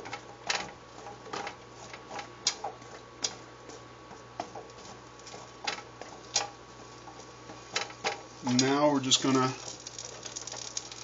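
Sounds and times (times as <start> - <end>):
spatula scraping a frying pan: 0.0 - 3.0, 3.6 - 8.7.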